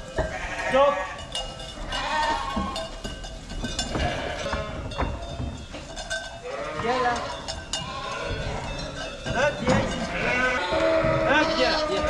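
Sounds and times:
sheep bleating: 0:00.2 - 0:02.8, 0:04.0 - 0:04.9, 0:06.4 - 0:08.9, 0:09.6 - 0:12.0.

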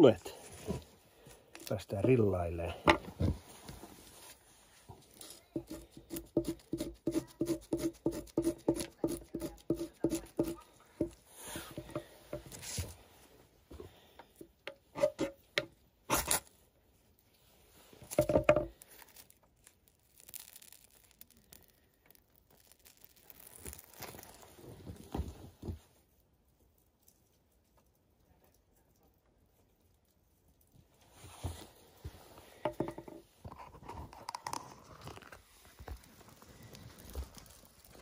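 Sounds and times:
knife scraping bark: 0:05.2 - 0:10.6, 0:14.9 - 0:15.5, 0:16.1 - 0:16.5.

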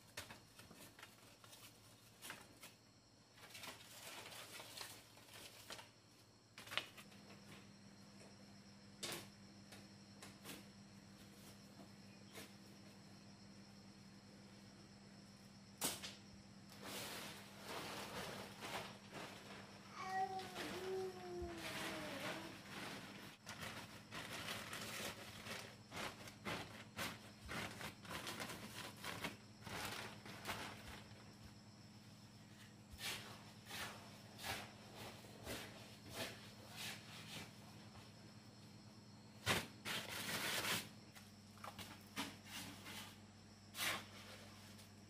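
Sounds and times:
plastic sheeting crinkling: 0:16.8 - 0:31.2.

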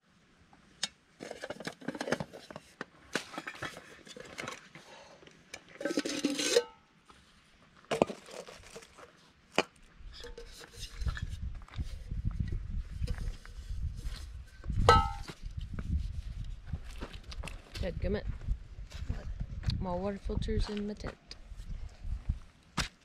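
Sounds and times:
metal pot clinks: 0:05.8 - 0:06.8, 0:14.9 - 0:15.3.

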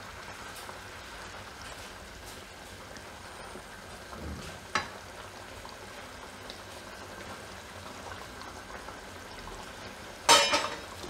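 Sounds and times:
curry bubbling in a pan: 0:00.0 - 0:11.0.

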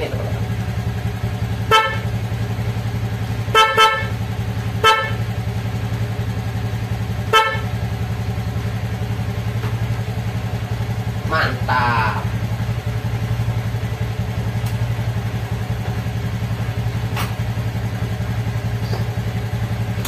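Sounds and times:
scooter engine idling: 0:00.0 - 0:20.0
scooter horn beeps: 0:01.5 - 0:02.3, 0:03.4 - 0:05.4, 0:07.2 - 0:08.0.

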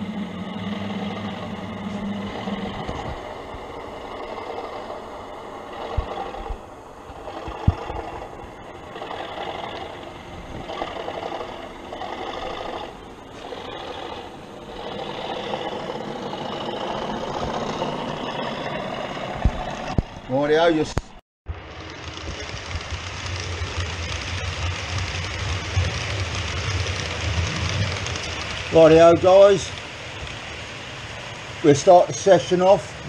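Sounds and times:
model train diesel engine sound: 0:00.0 - 0:33.0.

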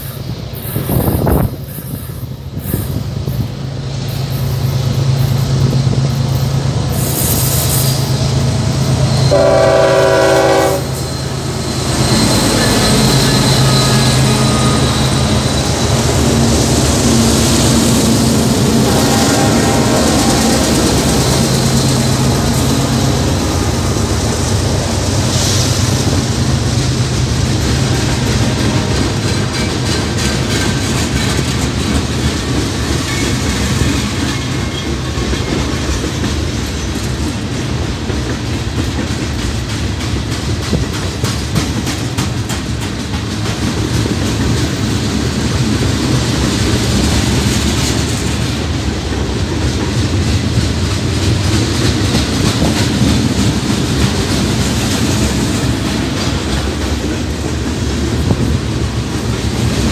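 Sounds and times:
diesel locomotive engines droning: 0:00.0 - 0:59.9
train wheels clicking over rail joints: 0:00.0 - 0:59.9
locomotive horn blast: 0:09.0 - 0:11.4, 0:12.4 - 0:16.6, 0:18.3 - 0:24.0.

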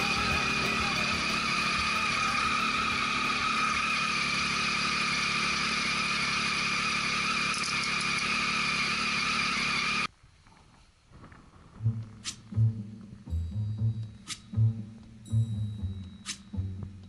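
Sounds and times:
motorcycle engine idling: 0:00.0 - 0:10.1
constant high whine: 0:00.0 - 0:17.0.

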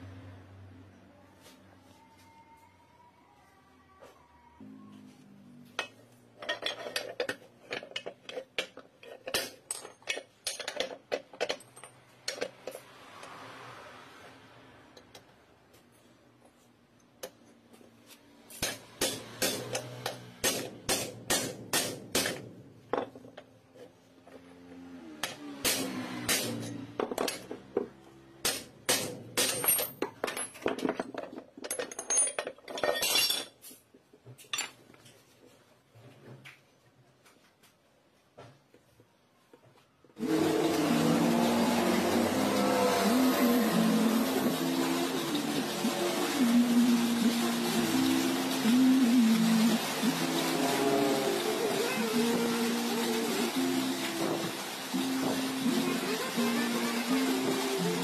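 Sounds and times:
metal tools clinking: 0:05.8 - 0:12.9, 0:29.4 - 0:35.1.

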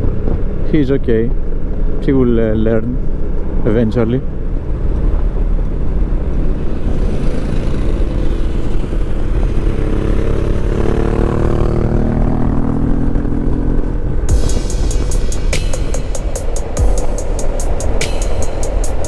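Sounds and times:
wind rumble: 0:00.0 - 0:19.0
scooter engine: 0:06.4 - 0:12.6
music: 0:14.3 - 0:19.0.

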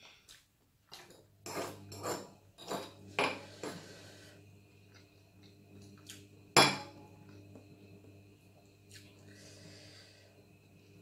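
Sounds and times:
spoon scraping ceramic plates: 0:01.0 - 0:04.1.

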